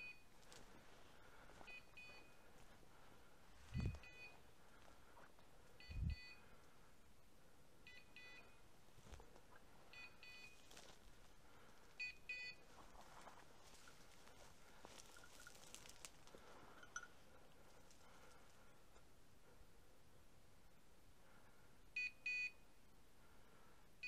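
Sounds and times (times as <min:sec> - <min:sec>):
soft low thumps: 0:03.5 - 0:04.4
beeper collar double beep: 0:05.8 - 0:06.4.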